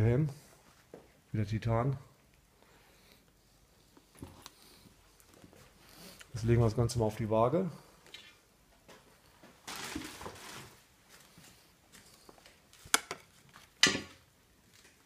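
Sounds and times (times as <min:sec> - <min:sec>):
handling rustle: 0:09.3 - 0:13.8.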